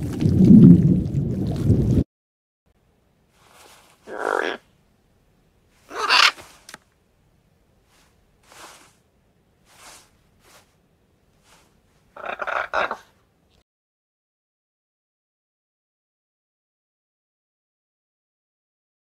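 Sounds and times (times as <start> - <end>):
macaw squawks: 4.1 - 4.7, 5.9 - 6.6, 12.2 - 13.1.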